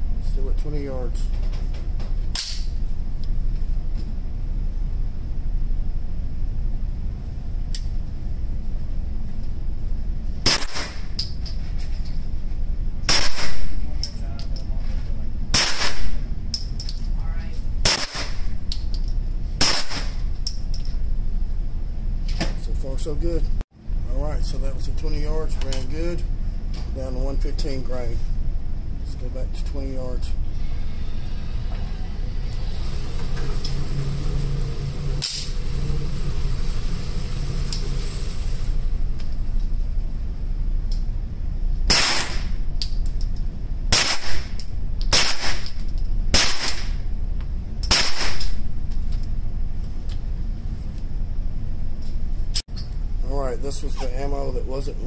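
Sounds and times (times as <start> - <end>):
steady low rumble: 0.0 - 55.0
sharp click: 2.3 - 2.7
suppressed gunshot: 10.4 - 11.1, 13.1 - 13.8, 15.5 - 16.2, 17.8 - 18.5, 19.6 - 20.2, 41.9 - 42.6, 43.9 - 45.6, 46.3 - 47.0, 47.9 - 48.6
target carrier motor humming: 17.4 - 43.9.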